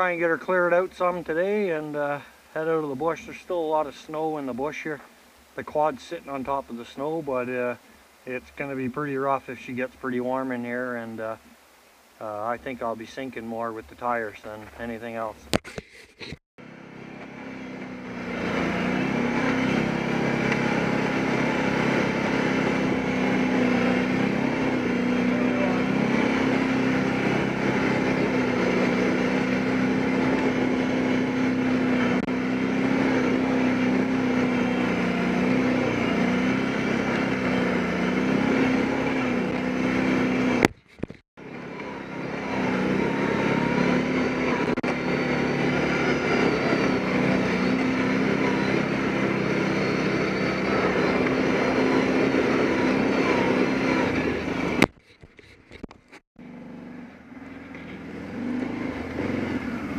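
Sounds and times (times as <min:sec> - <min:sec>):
quad bike engine running: 0:16.6 - 0:59.9.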